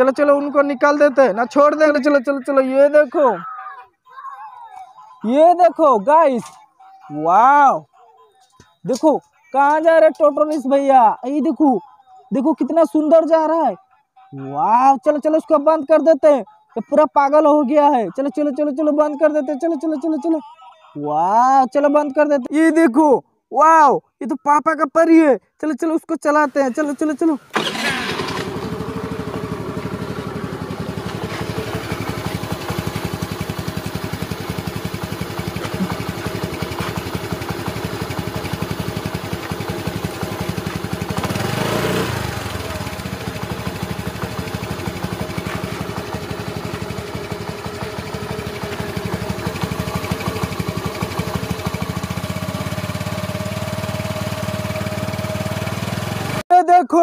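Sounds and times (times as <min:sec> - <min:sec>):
toy quad bike motor buzzing: 0:27.5 - 0:56.3.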